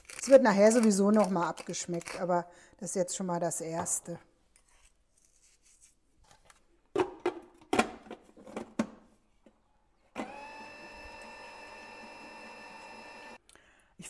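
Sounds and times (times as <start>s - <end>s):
mixer motor running: 10.2s - 13.4s.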